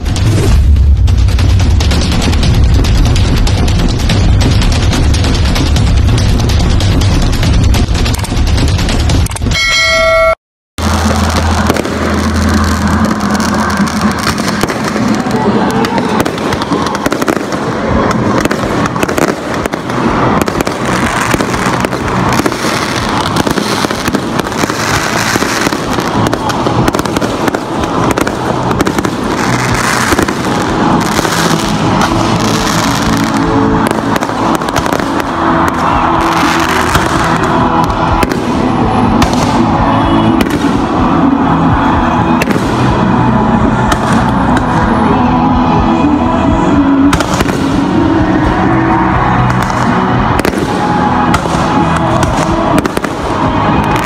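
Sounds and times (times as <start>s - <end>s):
fireworks bangs and crackles: 0.0s - 9.7s, 10.8s - 54.0s
loud music: 0.0s - 54.0s.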